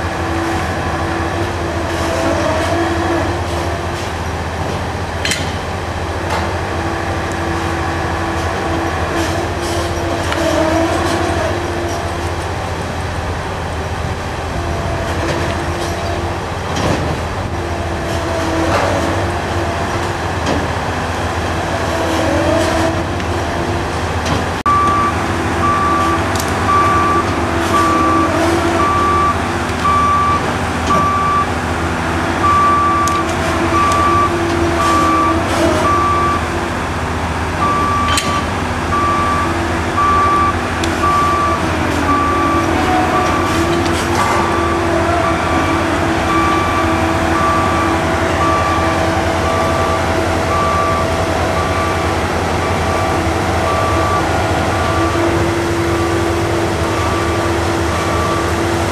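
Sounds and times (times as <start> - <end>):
heavy machinery running: 0.0 - 58.9
machinery whine and squeals: 0.0 - 58.9
reversing alarm beeping: 24.7 - 31.6, 32.4 - 36.5, 37.6 - 55.5, 56.8 - 58.6.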